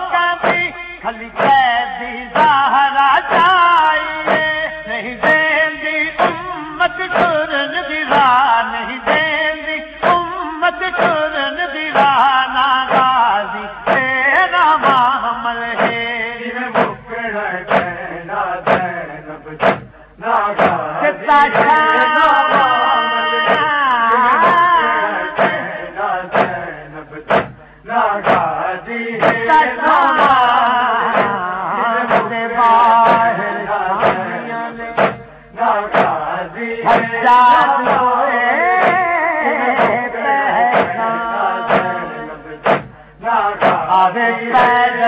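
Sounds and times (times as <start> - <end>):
men chanting a lament: 0.0 - 45.0
hands beating on chest: 4.3 - 4.5, 6.2 - 6.4, 12.0 - 12.2, 13.9 - 14.1, 15.8 - 16.0, 16.8 - 17.0, 17.7 - 17.9, 18.7 - 18.9, 19.6 - 19.9, 20.6 - 20.8, 25.4 - 25.6, 26.4 - 26.6, 27.3 - 27.6, 28.2 - 28.5, 29.2 - 29.4, 34.0 - 34.2, 35.0 - 35.3, 35.9 - 36.2, 37.8 - 38.1, 38.8 - 39.0, 41.7 - 42.0, 42.6 - 43.0, 43.6 - 43.8.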